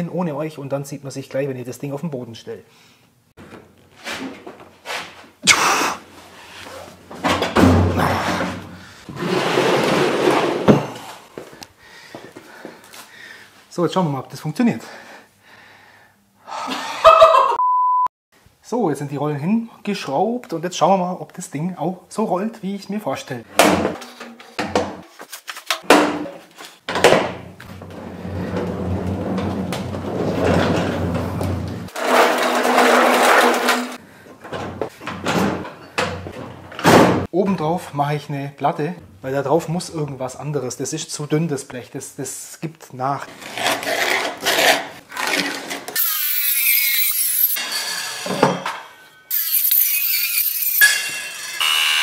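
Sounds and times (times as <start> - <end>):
metal drawer slamming: 7.2 - 8.7, 36.5 - 37.3
metal cabinet knocks and clanks: 7.2 - 8.8, 23.6 - 25.0, 25.8 - 33.9, 34.5 - 37.3
metal drawer scraping: 7.2 - 11.0, 26.2 - 35.7
cabinet rolling on casters: 7.3 - 10.9, 27.7 - 34.0.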